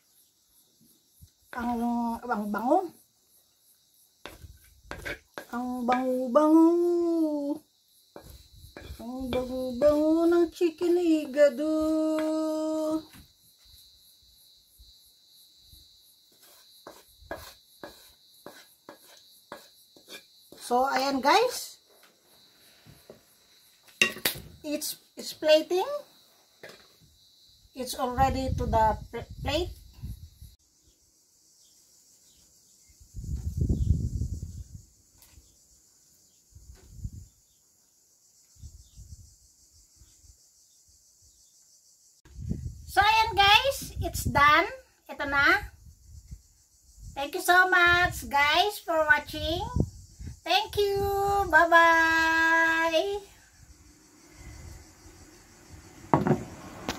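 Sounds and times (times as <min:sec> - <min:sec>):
wooden spoon scraping metal pan: 0:04.3 - 0:05.6, 0:08.2 - 0:10.2, 0:16.4 - 0:20.8
faint high hiss: 0:52.2 - 0:56.9.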